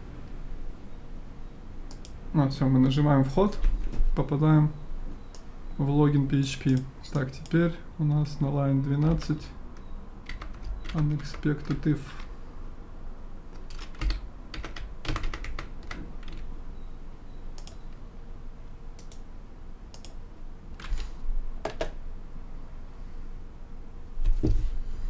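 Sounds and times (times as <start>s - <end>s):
keyboard keystrokes: 10.2s - 12.3s, 13.6s - 16.5s
mouse clicks: 17.6s - 18.0s, 19.9s - 20.2s.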